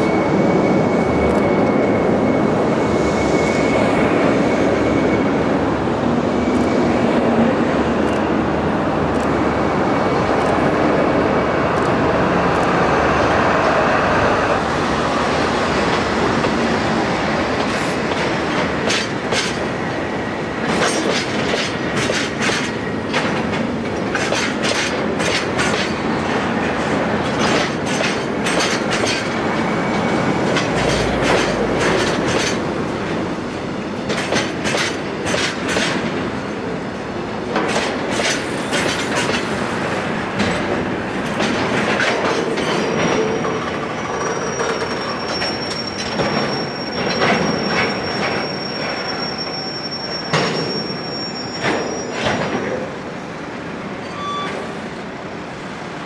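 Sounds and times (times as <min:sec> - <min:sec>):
high wheel squeal: 0:00.0 - 0:07.4, 0:29.1 - 0:32.1, 0:42.8 - 0:52.4, 0:54.0 - 0:54.9
train wheels clacking over rail joints: 0:17.6 - 0:19.8, 0:20.6 - 0:33.2, 0:34.0 - 0:36.3, 0:37.5 - 0:49.1.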